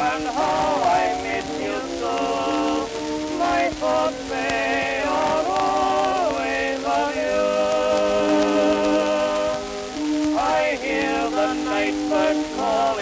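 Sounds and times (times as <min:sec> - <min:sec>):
male duet with orchestra: 0:00.0 - 0:09.7, 0:10.4 - 0:13.0
record surface crackle and hiss: 0:00.0 - 0:13.0.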